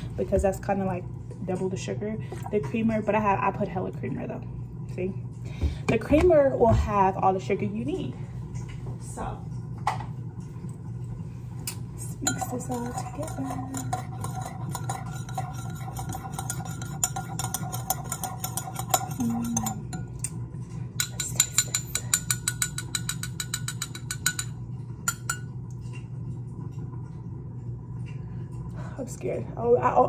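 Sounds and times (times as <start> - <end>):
spoon clinking in ceramic mug: 12.2 - 20.4, 21.0 - 25.5.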